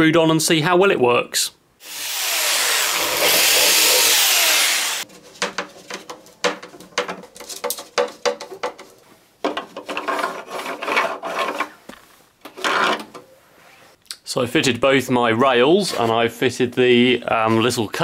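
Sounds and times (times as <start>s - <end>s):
power drill running into wood: 1.8s - 5.0s
plastic rail knocking and scraping: 5.1s - 11.8s.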